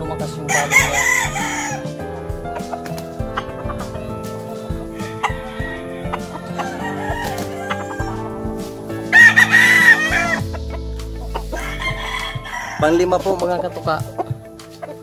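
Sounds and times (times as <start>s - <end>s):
background music: 0.0s - 15.0s
rooster crowing: 0.5s - 1.9s, 5.0s - 8.3s, 9.1s - 10.4s, 11.4s - 13.0s.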